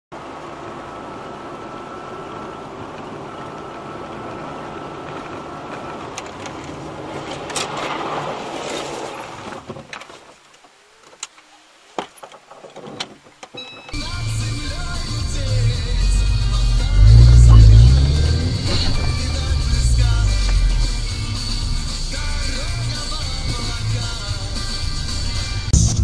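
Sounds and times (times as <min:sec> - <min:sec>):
car road and engine noise: 0:00.1 - 0:10.2, 0:12.3 - 0:26.0
car sliding against wall: 0:05.7 - 0:10.2, 0:17.0 - 0:22.1.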